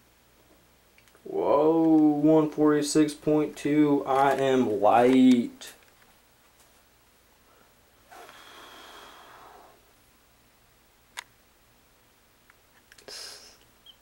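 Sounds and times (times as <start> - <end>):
person breathing out: 7.5 - 9.9.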